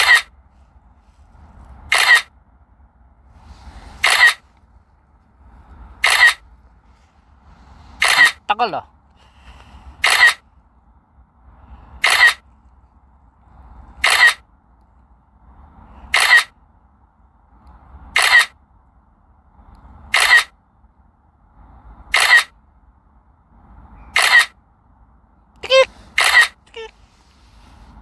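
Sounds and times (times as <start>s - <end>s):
camera shutter clicking: 1.9s - 2.3s, 4.0s - 4.4s, 6.0s - 6.4s, 8.0s - 8.4s, 10.0s - 10.4s, 12.0s - 12.4s, 14.0s - 14.4s, 16.1s - 16.5s, 18.2s - 18.5s, 20.1s - 20.5s, 22.1s - 22.5s, 24.2s - 24.5s, 26.2s - 26.5s.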